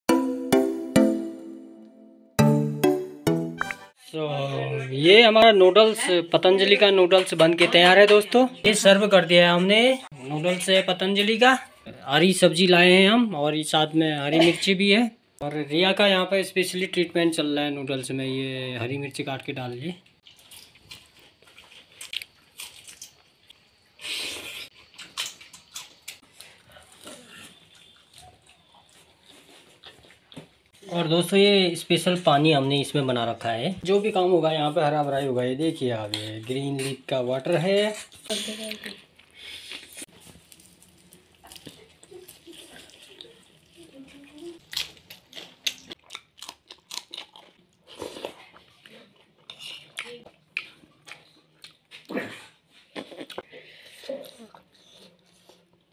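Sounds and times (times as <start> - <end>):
person chewing and biting: 20.2 - 23.5, 38.8 - 43.8, 44.6 - 52.2, 52.8 - 55.7.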